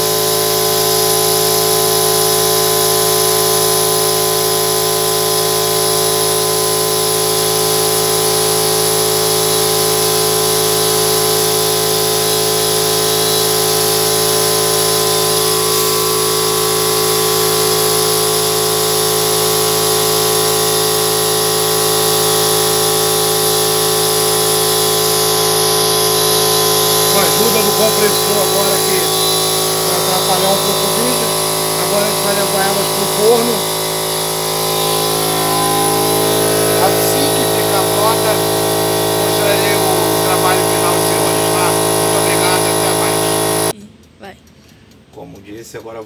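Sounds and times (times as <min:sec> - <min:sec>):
air compressor droning: 0:00.0 - 0:45.0.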